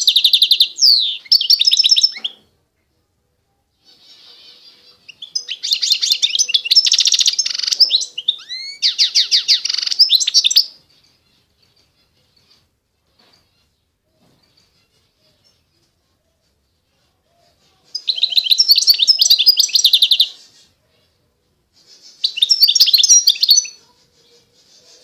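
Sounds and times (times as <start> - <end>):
finch singing trilled song: 0.0 - 2.5, 4.0 - 12.6, 17.9 - 20.6, 21.9 - 23.8.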